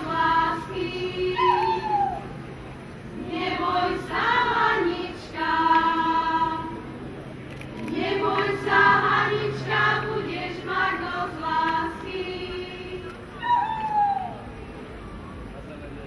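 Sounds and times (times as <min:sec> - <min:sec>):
women and girls singing unaccompanied: 0:00.0 - 0:02.3, 0:03.1 - 0:07.0, 0:07.8 - 0:13.6.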